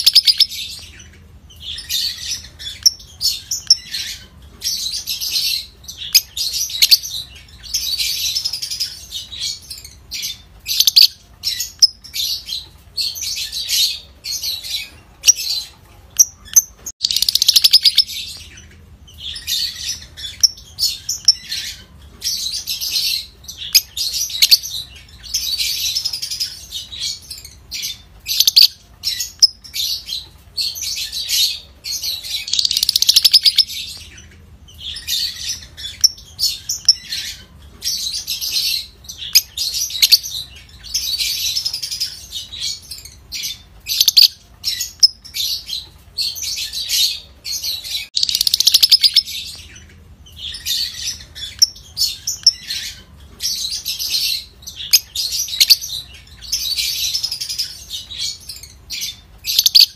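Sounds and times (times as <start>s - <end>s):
lovebird chattering: 0.0s - 1.0s, 16.2s - 18.2s, 32.2s - 33.8s, 43.9s - 45.6s, 47.8s - 49.5s, 53.8s - 59.9s.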